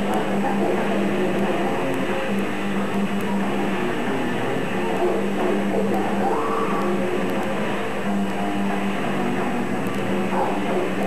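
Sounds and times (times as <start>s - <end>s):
distorted electric guitar: 0.0s - 11.0s
drums: 0.0s - 11.0s.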